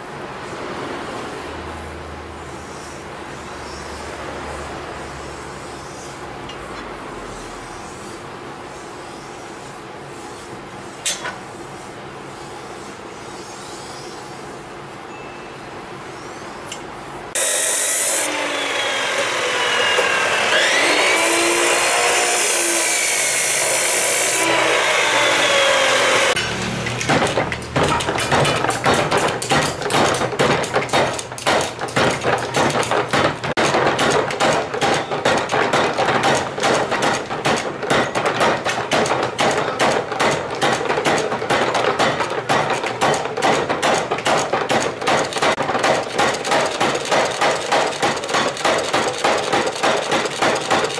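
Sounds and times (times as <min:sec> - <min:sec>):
power hammer pounding steel: 0:17.4 - 0:50.9.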